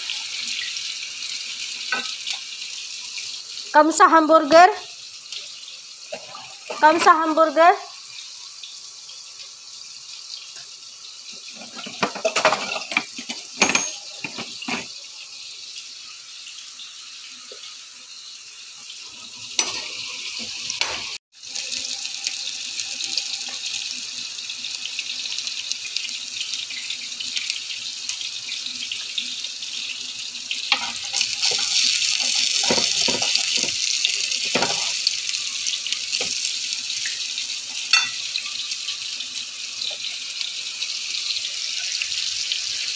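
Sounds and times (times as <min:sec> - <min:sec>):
food sizzling on a grill pan: 0:00.0 - 0:42.9
hot oil sizzling in a pan: 0:00.0 - 0:42.9
cookware clattering: 0:11.5 - 0:14.9, 0:19.6 - 0:21.2, 0:30.7 - 0:33.8, 0:34.4 - 0:35.0, 0:37.7 - 0:38.4.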